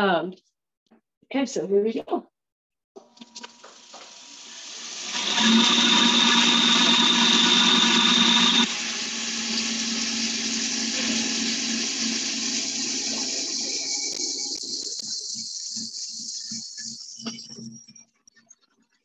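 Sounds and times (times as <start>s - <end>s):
cotton candy machine whirring: 3.0s - 17.9s.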